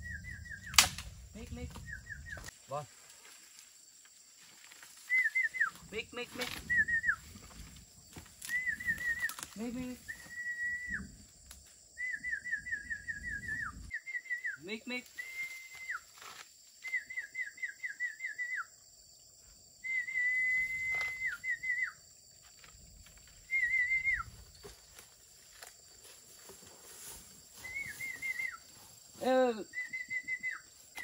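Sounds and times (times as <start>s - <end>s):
high whistled warbles: 0.0s - 2.5s, 5.0s - 5.8s, 6.4s - 7.4s, 8.4s - 11.1s, 12.0s - 14.6s, 19.8s - 22.0s, 23.4s - 24.5s, 27.5s - 28.9s, 29.7s - 31.0s.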